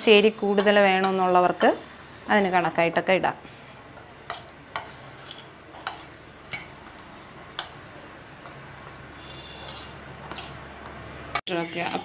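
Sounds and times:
spoon stirring thick batter: 3.8s - 11.0s.

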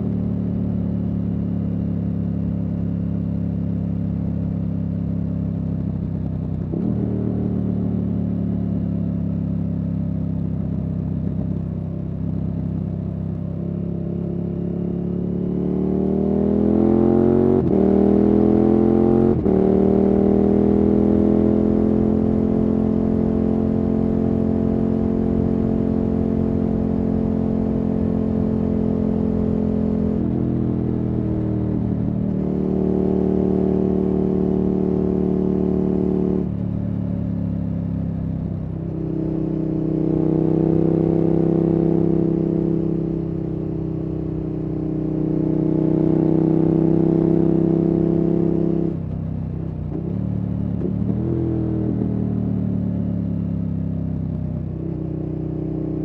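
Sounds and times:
motorcycle engine accelerating: 0.0s - 56.0s.

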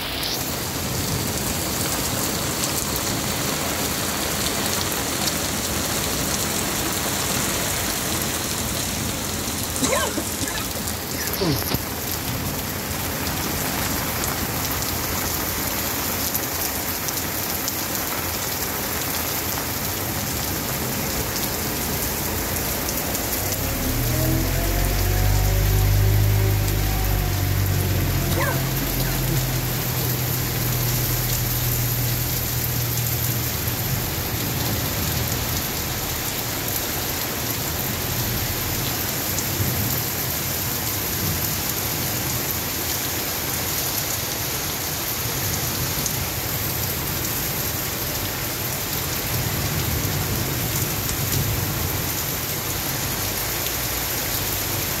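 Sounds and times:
heavy rain on pavement: 0.0s - 55.0s
low rumble: 22.3s - 35.6s.

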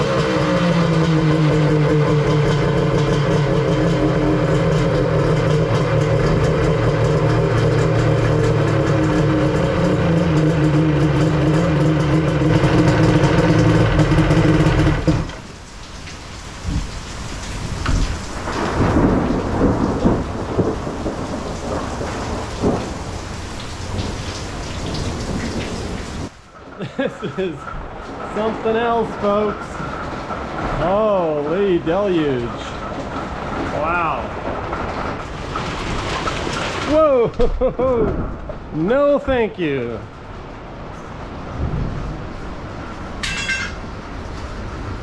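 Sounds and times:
jet ski engine running: 0.0s - 15.5s
heavy rain pouring: 0.0s - 45.0s.

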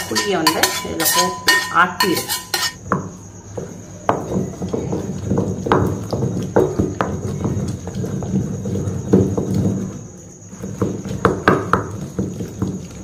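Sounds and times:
stone grinding on stone: 0.0s - 2.8s.

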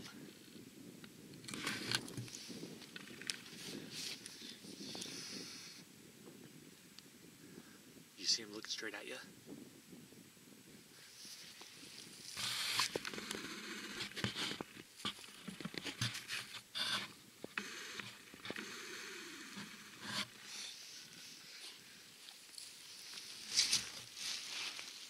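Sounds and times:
handling noise on microphone: 11.1s - 18.6s, 22.5s - 25.0s.

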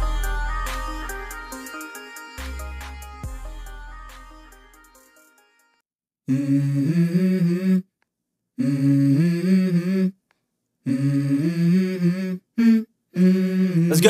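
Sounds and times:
person humming a melody: 6.3s - 7.9s, 8.6s - 10.2s, 10.8s - 14.0s.

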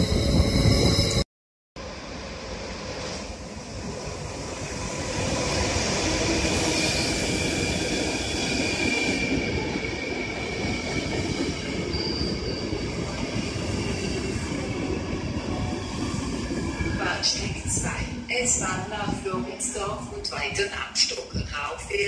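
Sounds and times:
train wheels rumbling on rails: 2.1s - 22.0s
high wheel squeal: 10.6s - 14.8s.

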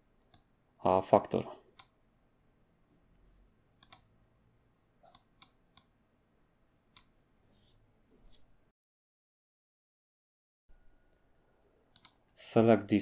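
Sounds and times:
computer mouse clicks: 0.2s - 0.5s, 1.7s - 2.0s, 3.8s - 4.1s, 5.0s - 5.9s, 6.9s - 7.2s, 11.9s - 12.2s.

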